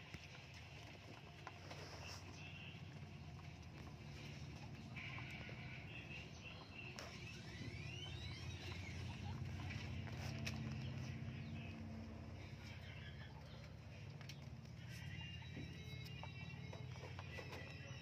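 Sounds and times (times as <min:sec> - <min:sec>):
birds chirping: 0:00.1 - 0:18.0.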